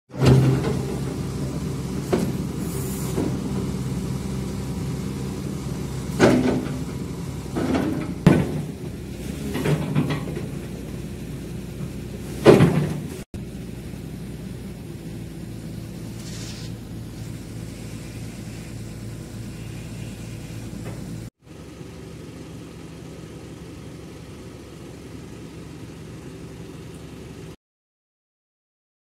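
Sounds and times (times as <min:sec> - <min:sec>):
diesel engine running: 0:00.1 - 0:27.6
loud metallic clunks: 0:06.1 - 0:10.8, 0:11.8 - 0:13.2.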